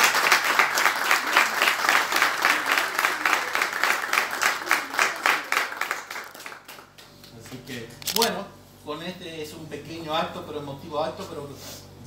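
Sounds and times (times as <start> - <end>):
people applauding: 0.0 - 7.8.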